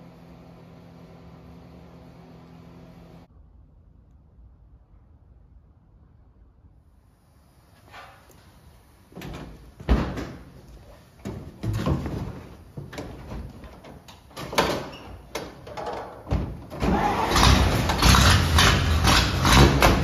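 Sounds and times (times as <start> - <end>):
truck door opening and shutting: 9.1 - 10.6, 11.2 - 20.0
truck engine starting: 16.6 - 20.0.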